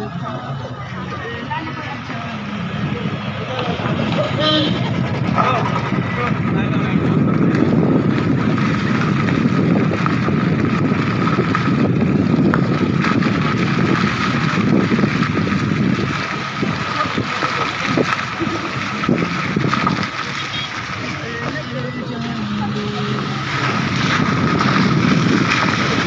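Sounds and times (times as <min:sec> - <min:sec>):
car road and engine noise: 0:00.0 - 0:26.0
wind buffeting microphone: 0:02.4 - 0:21.2, 0:22.4 - 0:26.0.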